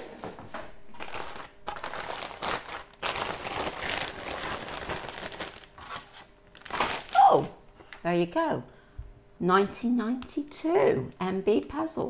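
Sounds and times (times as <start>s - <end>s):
plastic bag rustling: 0.9s - 7.5s.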